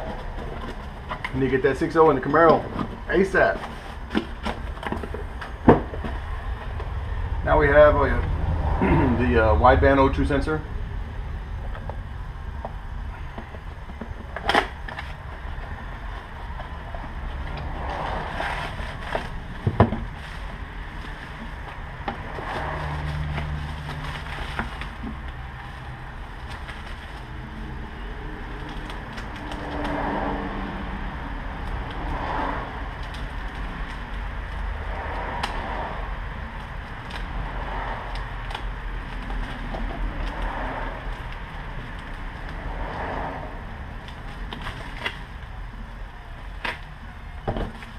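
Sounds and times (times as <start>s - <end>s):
low steady rumble: 0.0s - 47.9s
plastic packaging crinkling: 13.6s - 30.4s, 43.9s - 45.4s.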